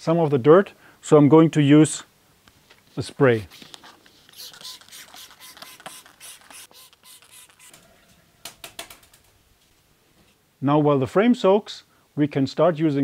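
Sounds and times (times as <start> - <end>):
spray bottle hissing: 3.5 - 7.8.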